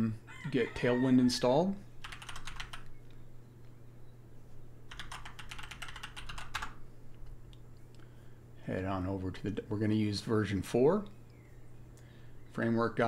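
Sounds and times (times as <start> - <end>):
faint low hum: 0.0 - 13.0
keyboard typing: 2.0 - 2.9, 4.9 - 6.8.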